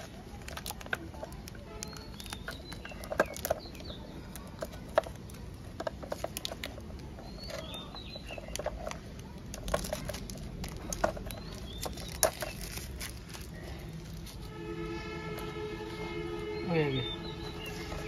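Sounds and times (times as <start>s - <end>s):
plastic wrap snapping: 0.0s - 7.7s, 8.4s - 14.4s
plastic wrap crinkling: 0.0s - 14.5s
birds chirping: 0.0s - 18.0s.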